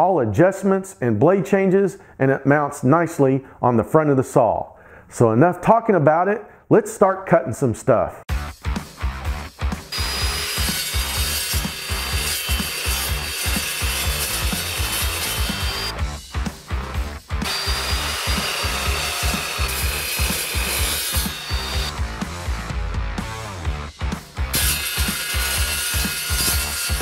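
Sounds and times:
music with steady beat: 8.3s - 10.2s, 15.4s - 26.9s
chop saw cutting steel: 9.9s - 16.0s, 17.4s - 22.0s, 24.5s - 27.0s.

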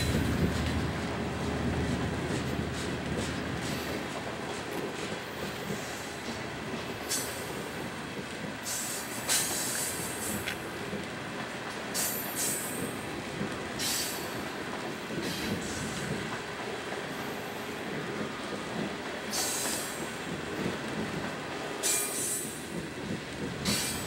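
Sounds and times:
steel wheels rumbling on rail: 0.0s - 24.0s
train wheels squealing: 11.9s - 12.9s, 13.8s - 14.4s, 19.3s - 20.2s, 21.8s - 22.7s, 23.6s - 24.0s.

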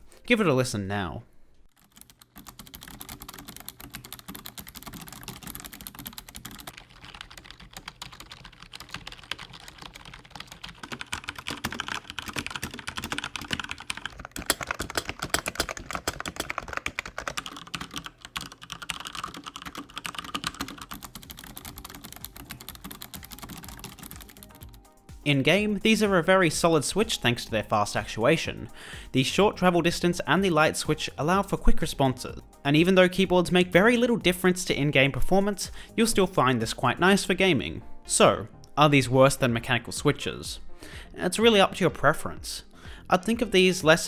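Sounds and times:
fast typing on keyboards: 1.7s - 24.9s.

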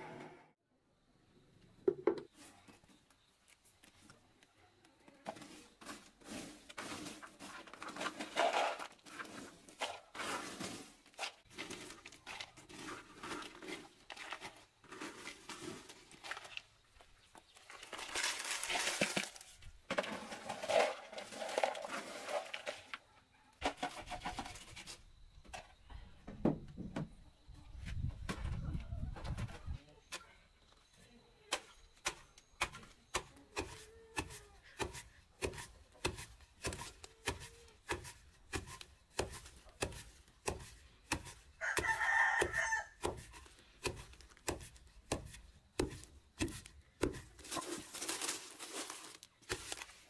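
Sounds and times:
dry chips rustling and clattering: 5.3s - 23.0s, 46.4s - 50.0s.

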